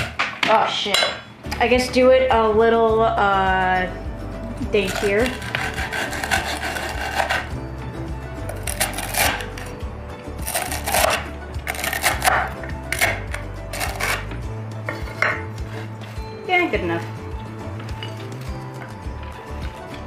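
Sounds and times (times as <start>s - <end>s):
background music: 0.0s - 20.0s
knife chopping crackers on wood: 4.9s - 7.5s, 8.5s - 9.7s, 10.4s - 14.3s.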